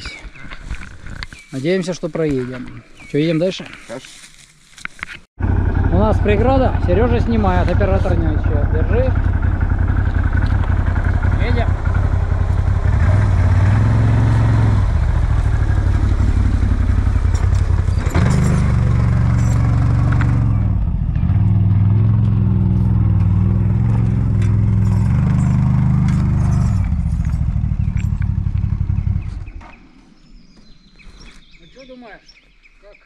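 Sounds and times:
quad bike engine revving: 0:05.4 - 0:29.6
knocks and clatter: 0:17.0 - 0:29.8.

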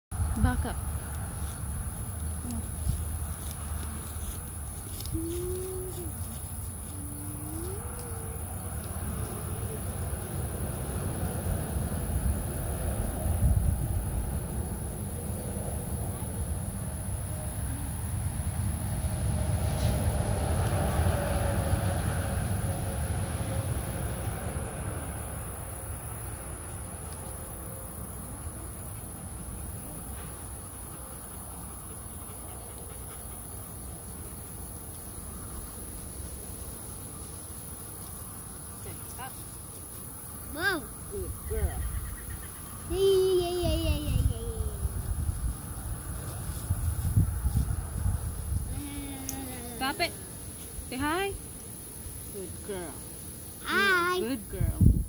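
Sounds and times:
insects trilling: 0:00.2 - 0:55.0
dove cooing: 0:05.1 - 0:08.5.

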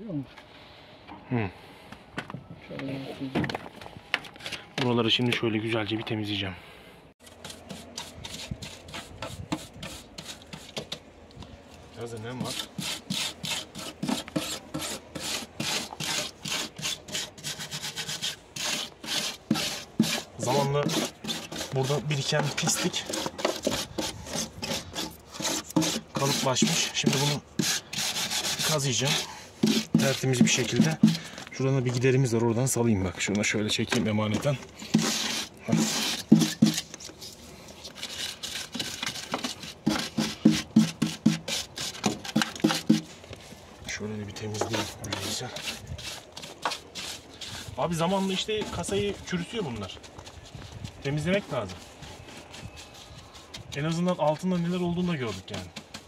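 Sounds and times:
wire brush scrubbing steel: 0:12.1 - 0:31.2, 0:34.8 - 0:37.0, 0:44.5 - 0:49.8
hand tool scraping sheet metal: 0:12.2 - 0:31.3, 0:34.8 - 0:37.1, 0:37.8 - 0:43.1.

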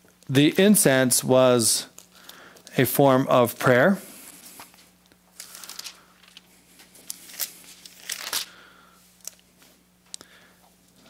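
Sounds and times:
faint steady hum: 0:00.0 - 0:11.0
pages turning and rustling: 0:05.4 - 0:08.5.

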